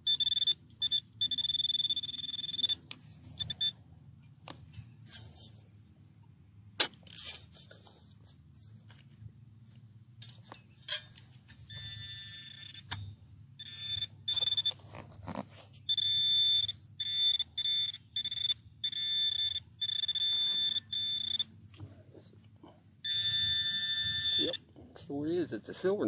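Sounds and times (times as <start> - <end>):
metal detector buzzing pulses: 0.0 - 3.8, 13.6 - 14.8, 15.9 - 21.5, 23.0 - 24.6.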